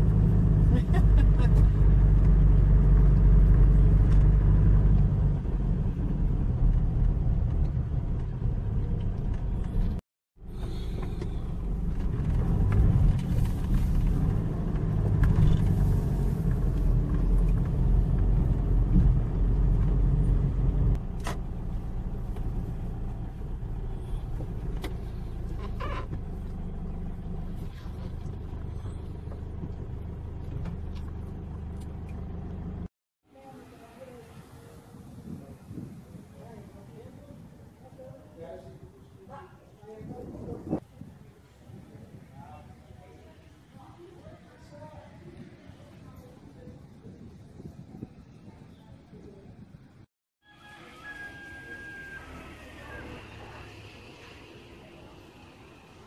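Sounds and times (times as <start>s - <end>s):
car cabin engine and road noise: 0.0s - 36.8s.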